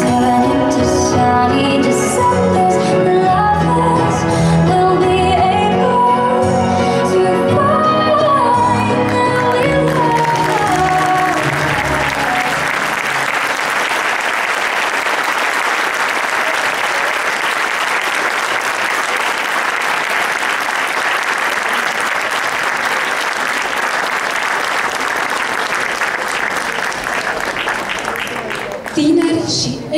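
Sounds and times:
music: 0.0s - 14.0s
audience applauding: 9.0s - 29.4s.

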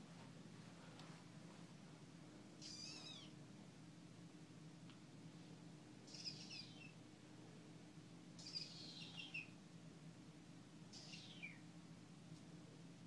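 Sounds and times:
low steady hum: 0.0s - 13.0s
kitten mewing: 2.6s - 3.3s, 6.1s - 6.9s, 8.4s - 9.4s, 10.9s - 11.6s.

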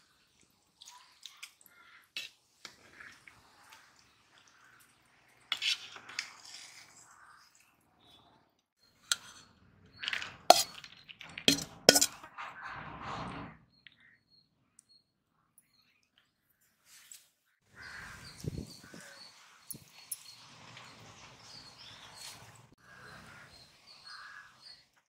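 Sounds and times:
metal ladle scraping metal pot: 9.0s - 13.6s.

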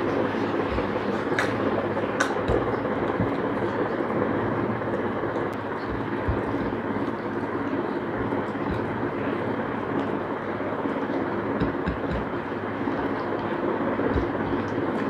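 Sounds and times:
steady rushing noise: 0.0s - 15.0s
soft low thumps: 5.9s - 6.8s.

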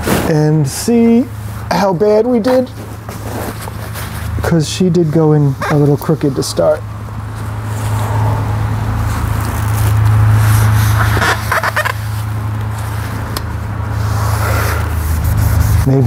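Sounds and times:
steady low hum: 0.0s - 16.0s
paper towel rubbing on metal: 9.2s - 13.3s, 13.9s - 16.0s.

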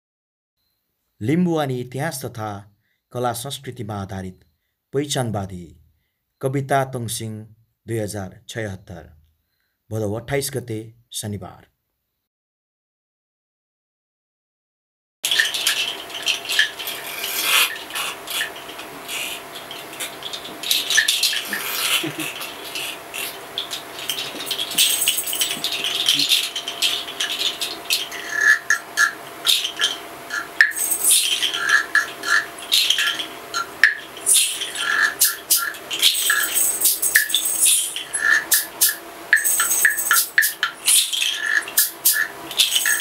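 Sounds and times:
faint steady hum: 15.2s - 43.0s
higher clinking notes: 23.9s - 27.8s
small jingles shaken: 24.2s - 26.7s, 30.7s - 31.5s, 36.0s - 37.9s, 39.4s - 40.5s, 42.6s - 43.0s.

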